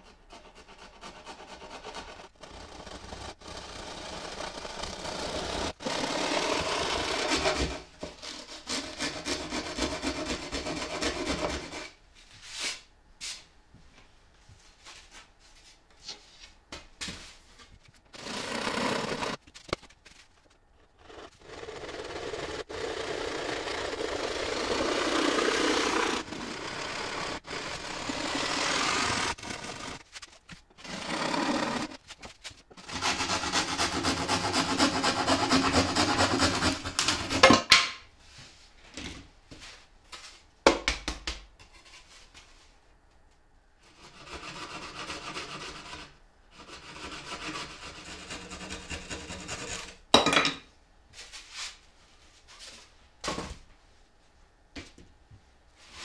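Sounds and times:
hand saw cutting plywood: 0.0 - 12.0, 18.1 - 19.7, 20.9 - 37.5, 43.9 - 50.0.

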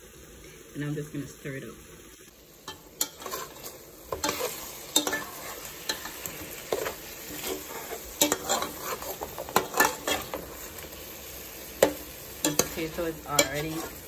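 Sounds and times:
curry sizzling: 0.0 - 14.0
metal spoon scraping metal pot: 2.7 - 10.8, 11.8 - 14.0.

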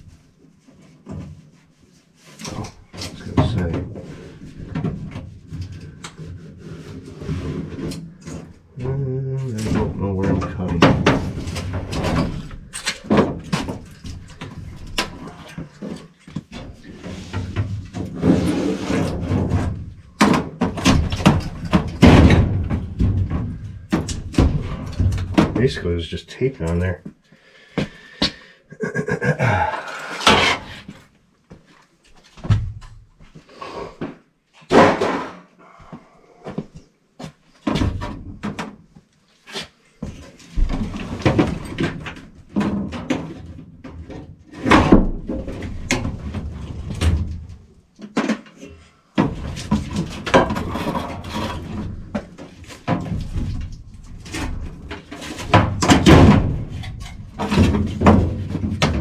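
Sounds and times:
sheet metal knocks and clanks: 9.6 - 14.2, 19.2 - 25.7, 54.9 - 59.0.

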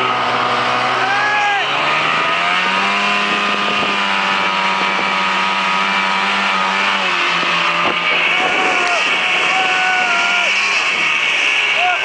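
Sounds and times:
snowmobile engine running: 0.0 - 12.0.

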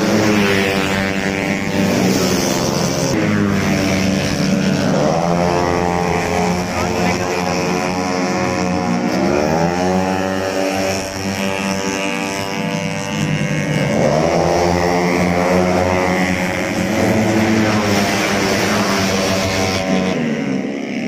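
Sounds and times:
scooter engines revving past: 0.0 - 21.0.

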